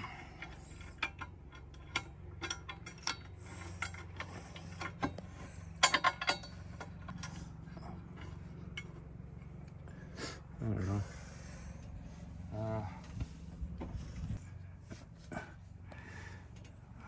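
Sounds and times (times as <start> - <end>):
metal clicks and clinks: 0.0 - 9.0
low steady hum: 0.0 - 17.0.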